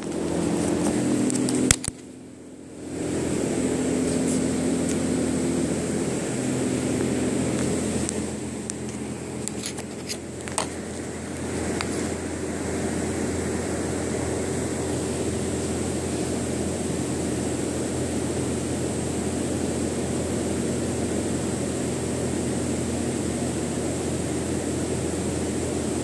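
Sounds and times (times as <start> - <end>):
machine hum with low drone: 0.0 - 26.0
sharp click: 1.3 - 2.1.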